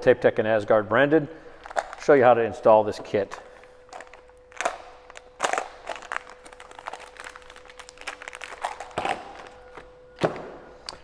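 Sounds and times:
plastic packaging crinkling: 0:01.6 - 0:02.2, 0:03.4 - 0:09.9
plastic cracking: 0:03.9 - 0:11.0.

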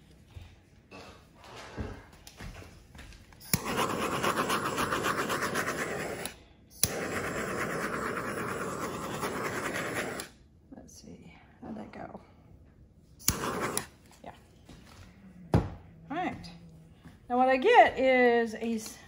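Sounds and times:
torch flame hissing: 0:03.4 - 0:10.4, 0:13.2 - 0:14.0.

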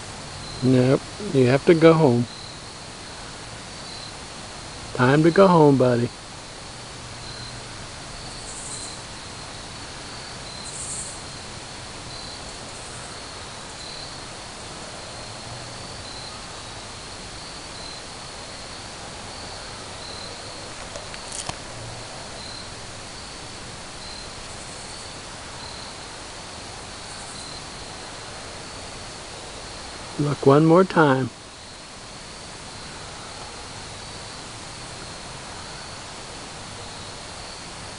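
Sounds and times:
insects chirping: 0:00.0 - 0:37.9
steady outdoor hiss: 0:00.0 - 0:37.9
sharp click: 0:20.8 - 0:21.6.

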